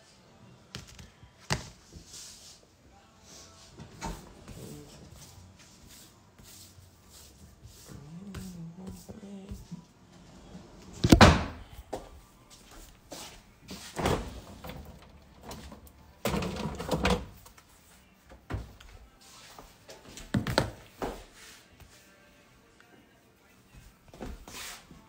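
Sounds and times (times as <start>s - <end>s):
knocks and thumps in kitchen: 11.0s - 11.8s, 13.9s - 17.4s.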